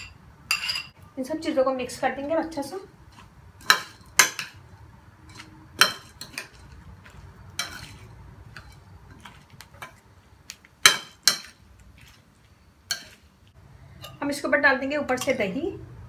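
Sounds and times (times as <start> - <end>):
metal spoon scraping bowl: 0.0 - 1.0, 5.2 - 10.0, 12.9 - 13.2.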